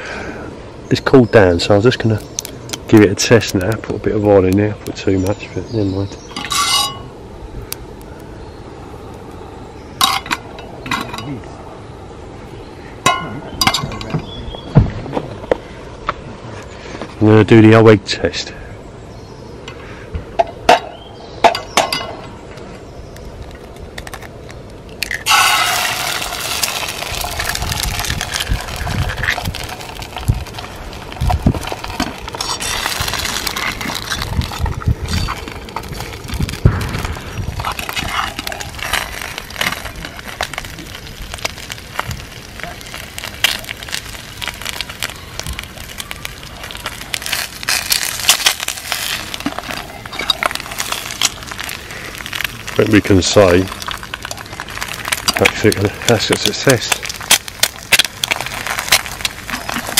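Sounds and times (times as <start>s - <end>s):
egg sizzling in hot oil: 25.0s - 59.9s.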